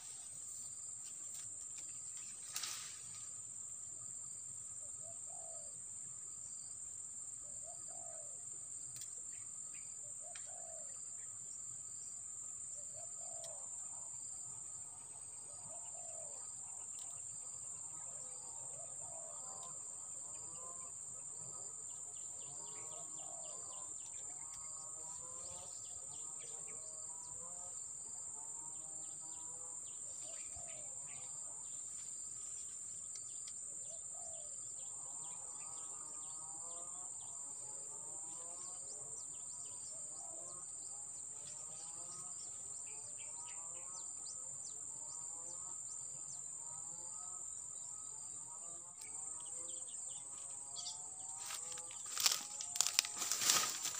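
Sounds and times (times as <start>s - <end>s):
high-pitched insect drone: 46.6s - 53.9s
birds calling and chirping: 50.8s - 53.9s.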